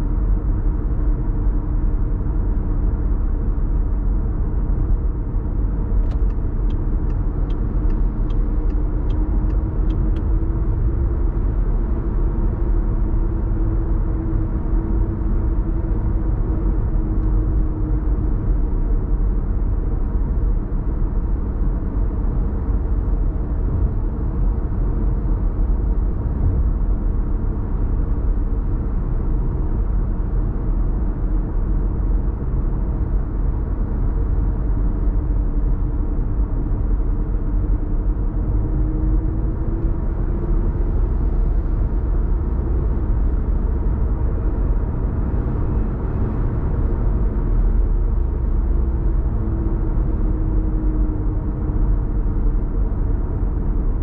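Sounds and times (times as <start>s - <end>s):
car road noise rumble: 0.0s - 54.0s
light ticks: 6.0s - 10.3s.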